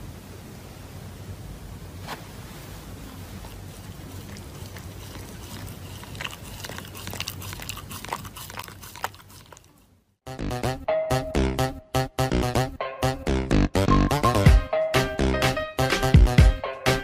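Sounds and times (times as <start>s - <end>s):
animal chewing crunchy food: 3.0s - 10.0s.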